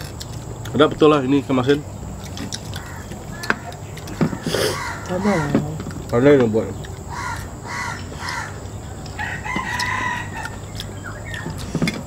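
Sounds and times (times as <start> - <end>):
rooster crowing: 2.7 - 5.6, 7.1 - 11.6.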